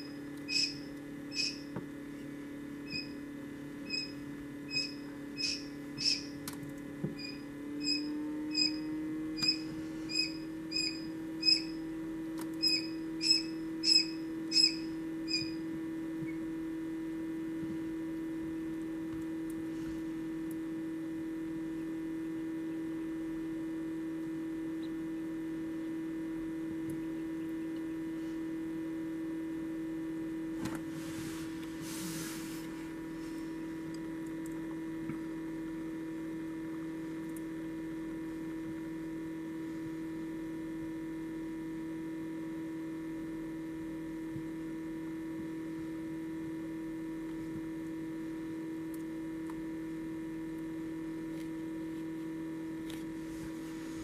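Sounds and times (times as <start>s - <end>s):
quail chick peeping: 0.0s - 1.7s, 2.9s - 3.2s, 3.8s - 6.4s, 7.2s - 11.8s, 12.6s - 15.6s
steady electric hum: 0.0s - 54.0s.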